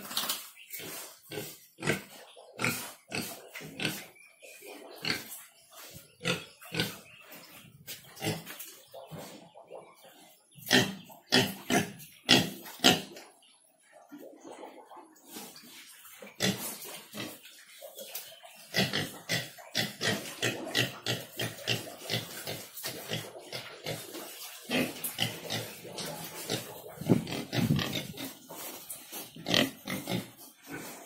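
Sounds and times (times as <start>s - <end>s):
pigs grunting: 0.8s - 5.4s, 6.0s - 7.1s, 8.0s - 13.2s, 18.7s - 31.0s.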